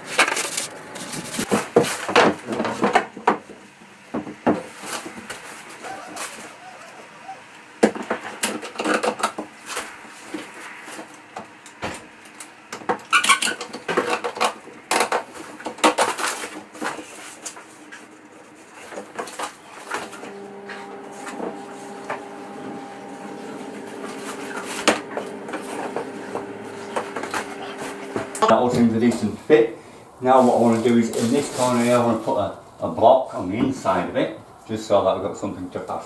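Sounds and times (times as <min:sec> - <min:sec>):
steady hum: 0:00.0 - 0:01.7, 0:19.8 - 0:30.3.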